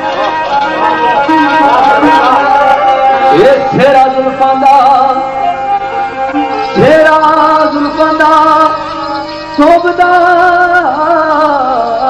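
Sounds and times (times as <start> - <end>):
devotional singing with held notes: 6.4 - 12.0.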